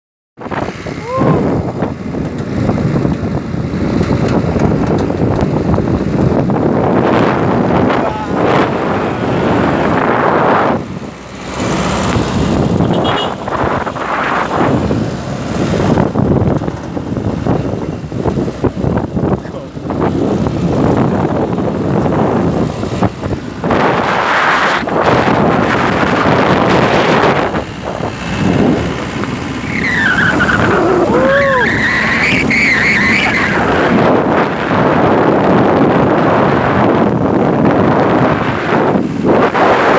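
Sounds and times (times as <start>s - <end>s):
road noise: 0.4s - 39.9s
truck engine running: 0.4s - 39.9s
wind buffeting microphone: 0.4s - 39.9s
high wavering squeal: 29.6s - 33.9s.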